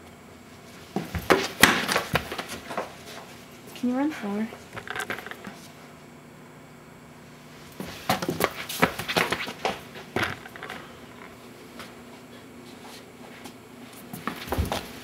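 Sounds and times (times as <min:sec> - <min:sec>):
shoes scuffing floor: 0:00.6 - 0:04.7, 0:07.6 - 0:15.0
footsteps on wooden floor: 0:00.9 - 0:05.6, 0:07.8 - 0:11.9, 0:13.4 - 0:15.0.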